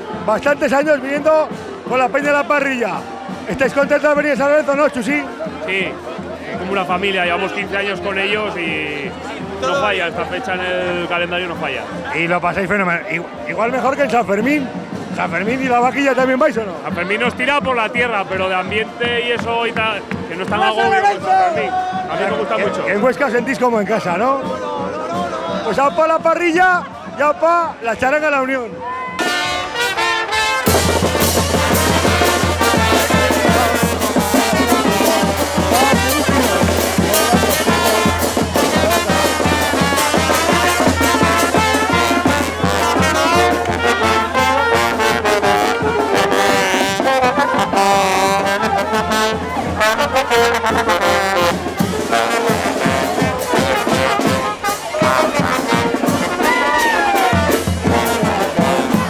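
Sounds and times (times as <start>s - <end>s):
brass street band playing: 0.0s - 59.0s
saxophone: 29.2s - 59.0s
snare and bass drum: 29.2s - 59.0s.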